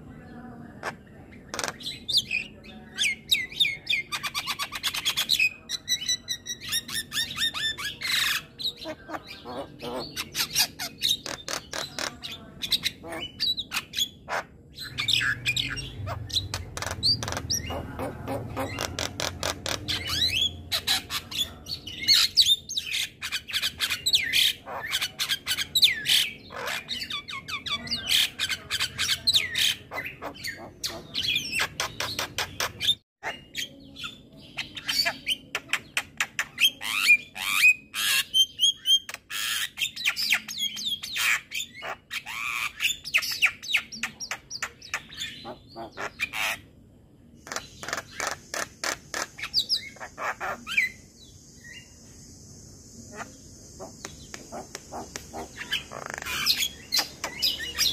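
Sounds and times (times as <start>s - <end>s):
bird singing with clicks and whistles: 53.1s - 57.9s.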